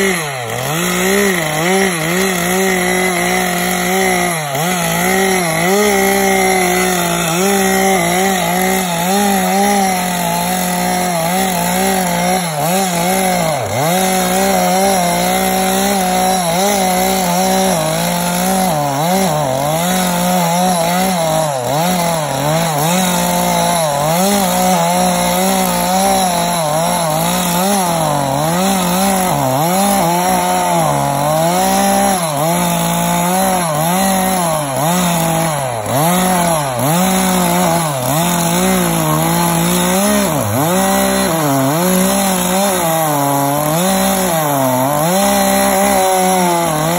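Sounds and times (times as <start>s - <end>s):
chainsaw cutting a log: 0.0s - 46.9s.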